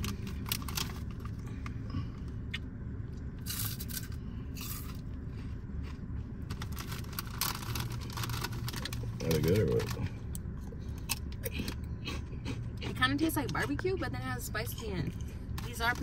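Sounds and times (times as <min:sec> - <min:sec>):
crunching and chewing: 0:00.0 - 0:13.8
plastic bag crinkling: 0:06.5 - 0:10.0.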